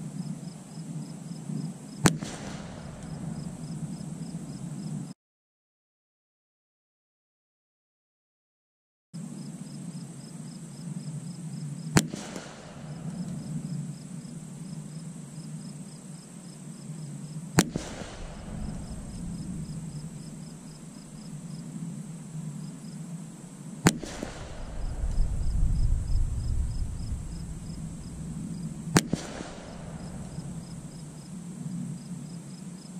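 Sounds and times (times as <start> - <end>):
rifle gunshots with echo: 2.0 - 4.5, 12.0 - 13.8, 17.6 - 21.4, 23.8 - 31.4.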